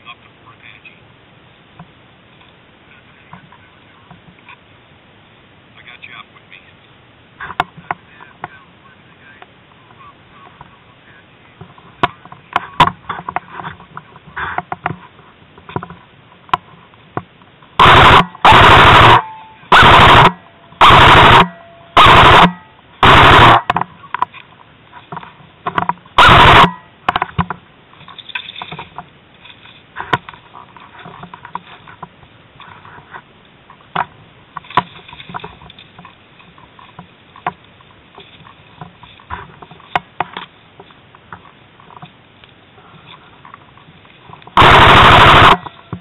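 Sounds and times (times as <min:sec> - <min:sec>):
faint clicks and knocks: 0:11.6 - 0:17.8, 0:23.6 - 0:26.2, 0:26.8 - 0:44.6
airsoft gun full-auto bursts: 0:17.8 - 0:23.7, 0:26.2 - 0:26.8, 0:44.6 - 0:45.6.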